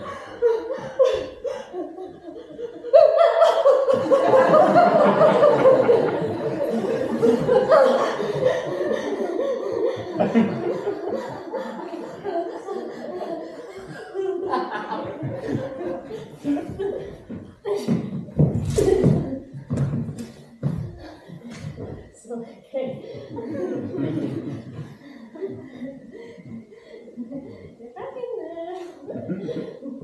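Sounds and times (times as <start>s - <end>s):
audience laughing: 0.0s - 17.9s, 23.0s - 27.9s, 29.0s - 30.0s.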